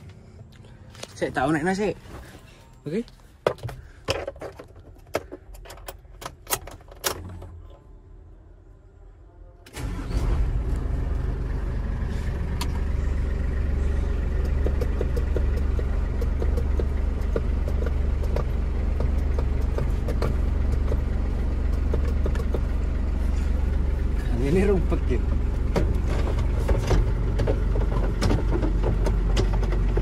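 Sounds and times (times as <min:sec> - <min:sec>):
diesel engine idling: 0:09.7 - 0:30.0.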